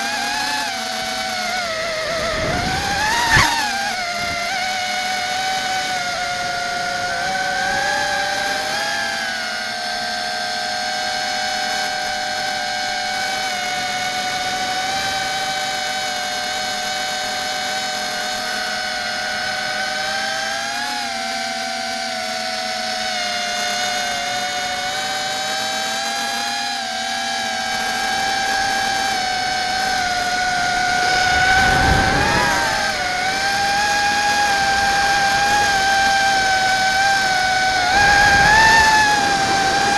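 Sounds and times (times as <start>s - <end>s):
drone motors and propellers whining: 0.0s - 39.9s.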